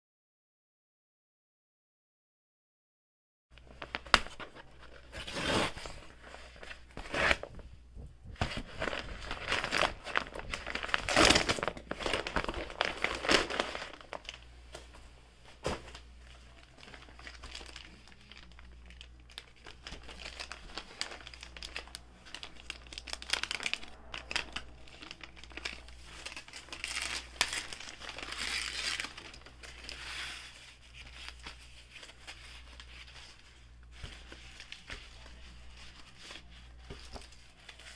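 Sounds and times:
plastic and cloth rustling: 3.6 - 37.9
paper bag crinkling: 8.4 - 14.5, 15.6 - 37.9.

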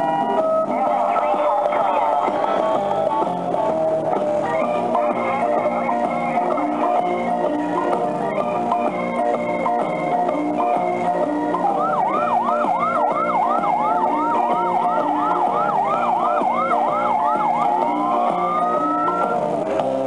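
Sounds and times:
kiddie ride tune: 0.0 - 20.0
electronic siren effect: 11.6 - 19.4.

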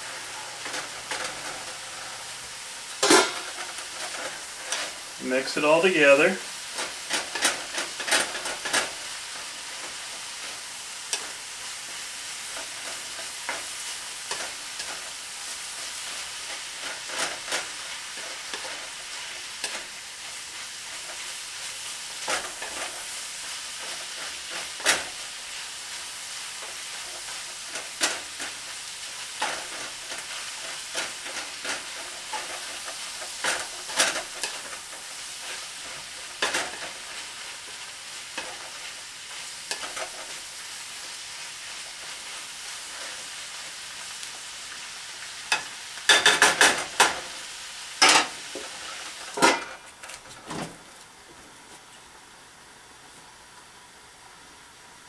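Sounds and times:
food sizzling in a frying pan: 0.0 - 55.0
spatula scraping pan: 3.0 - 6.0, 15.8 - 25.3, 26.6 - 44.3.

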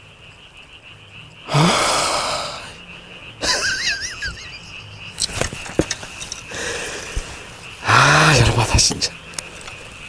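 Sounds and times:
man sighing with groan: 1.5 - 2.8.

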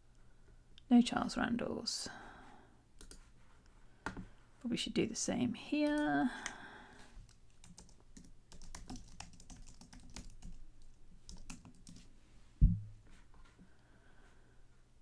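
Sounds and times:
low thump: 12.6 - 13.0.

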